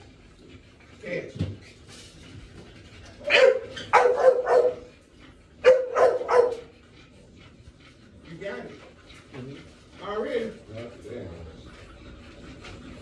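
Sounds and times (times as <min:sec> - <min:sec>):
dog barking: 0:03.2 - 0:04.9, 0:05.6 - 0:06.7.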